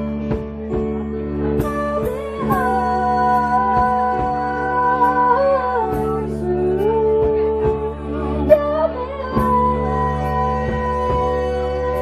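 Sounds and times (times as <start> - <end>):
bass guitar: 0.0 - 12.0
electric guitar: 0.0 - 12.0
person singing long notes: 1.6 - 12.0.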